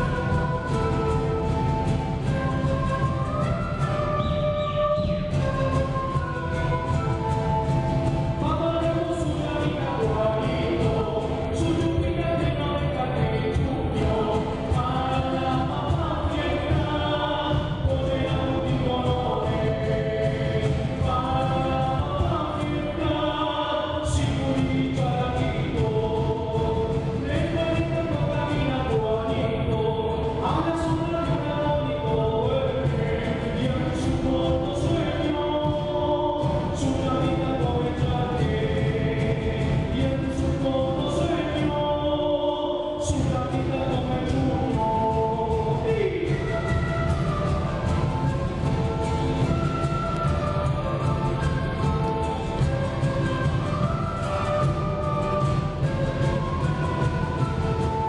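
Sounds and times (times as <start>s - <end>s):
steady drum beat: 0.0s - 23.4s, 43.0s - 58.0s
group playing melody in unison: 0.0s - 42.0s, 43.0s - 58.0s.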